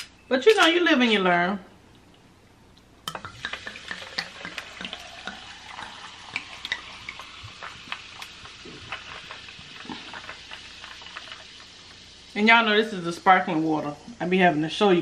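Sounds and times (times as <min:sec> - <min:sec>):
sparkling water pouring and fizzing: 0:03.1 - 0:14.0.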